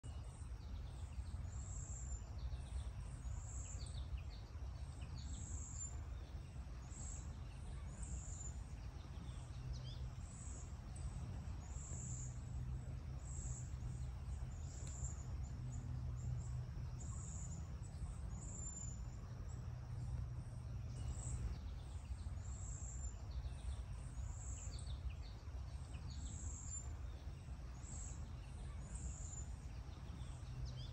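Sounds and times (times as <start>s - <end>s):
low rumble: 8.7s - 22.5s.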